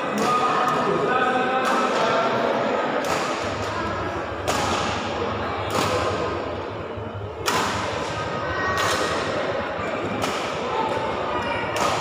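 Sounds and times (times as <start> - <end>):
murmur of spectators: 0.0 - 12.0
badminton racket hitting shuttlecock: 3.0 - 3.7, 4.4 - 5.0, 7.4 - 8.1, 10.2 - 10.6.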